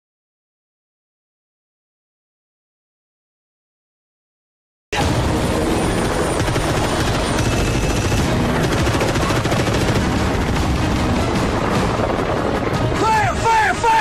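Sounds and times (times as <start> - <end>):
helicopter rotor chopping: 5.0 - 14.0.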